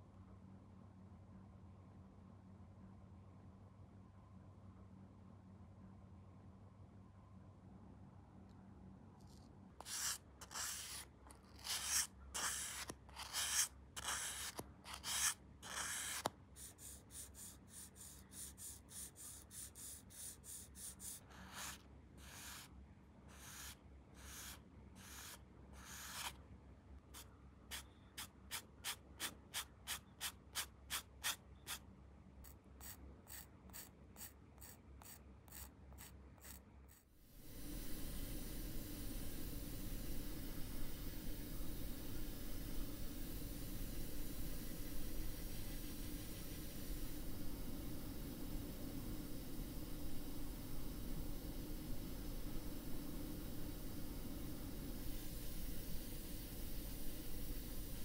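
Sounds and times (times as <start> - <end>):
sandpaper rubbing on plastic: 9.8 - 22.7, 23.3 - 26.4, 27.2 - 31.8.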